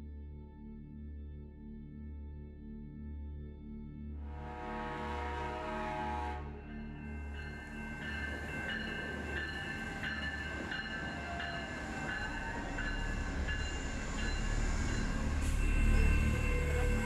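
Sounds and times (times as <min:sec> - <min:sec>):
train rumbling past: 0:04.3 - 0:17.0
crossing bell ringing: 0:05.0 - 0:17.0.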